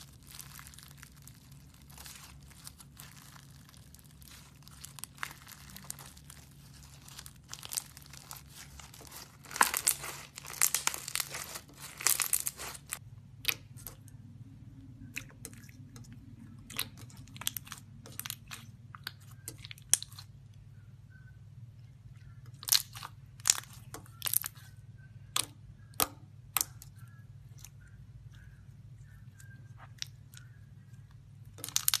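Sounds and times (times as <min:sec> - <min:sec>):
slime crackling and popping: 0:00.0 - 0:14.0, 0:16.7 - 0:20.3, 0:22.5 - 0:24.7, 0:31.5 - 0:32.0.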